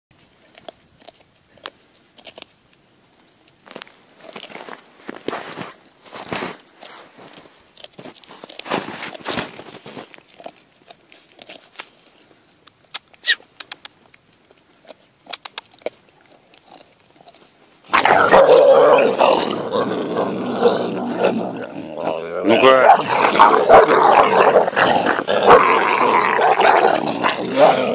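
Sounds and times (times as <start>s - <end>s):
puppy gnawing on bone: 0.2s - 27.9s
puppies growling: 17.9s - 27.9s.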